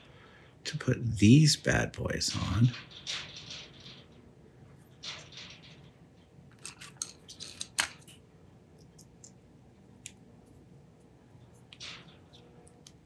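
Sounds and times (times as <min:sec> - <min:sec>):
small metal parts clicking: 0:02.7 - 0:08.2, 0:11.6 - 0:13.0.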